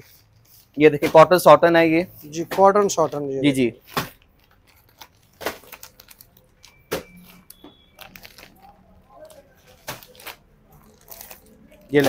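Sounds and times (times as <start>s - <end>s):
plastic packaging crinkling: 3.8s - 12.0s.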